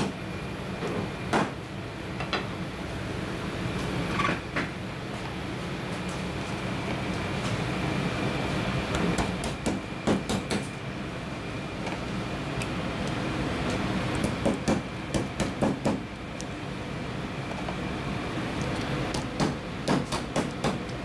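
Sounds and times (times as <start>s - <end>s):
steady background noise: 0.0s - 21.0s.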